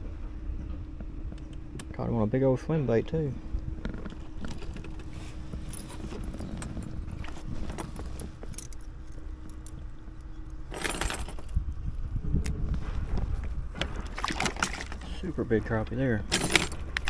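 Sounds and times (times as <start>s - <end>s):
faint steady hum: 0.0s - 17.0s
rustling: 3.9s - 9.2s
metal clicks and jangling: 16.3s - 17.0s.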